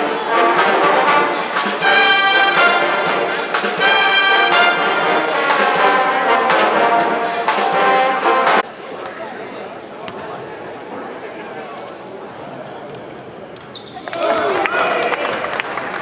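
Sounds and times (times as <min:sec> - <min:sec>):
brass band playing: 0:00.0 - 0:08.6.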